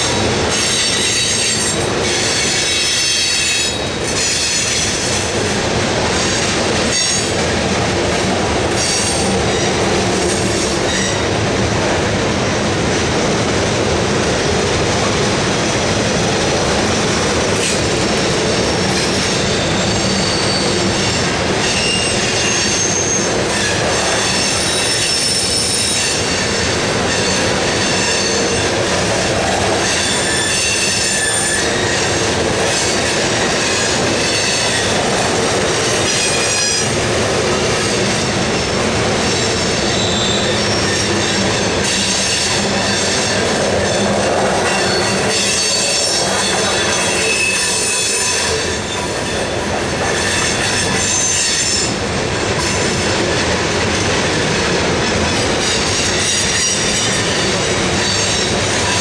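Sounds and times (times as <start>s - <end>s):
freight train wheels rumbling: 0.0s - 59.0s
wheel squeal: 18.5s - 26.3s, 39.3s - 49.6s.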